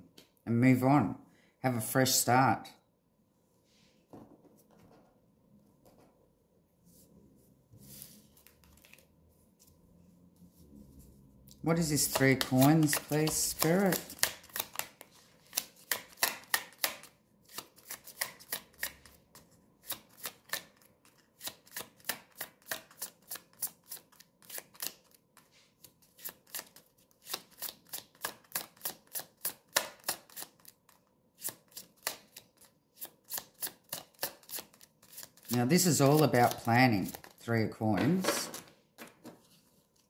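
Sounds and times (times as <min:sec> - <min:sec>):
cards being shuffled: 0:07.8 - 0:09.8, 0:11.5 - 0:40.0.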